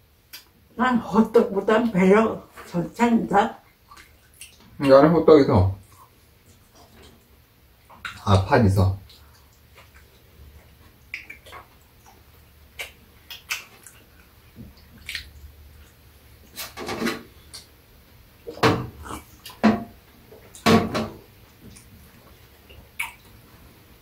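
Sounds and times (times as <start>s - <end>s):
chewing clicks: 9.1s - 14.3s, 15.0s - 16.0s, 21.7s - 23.4s.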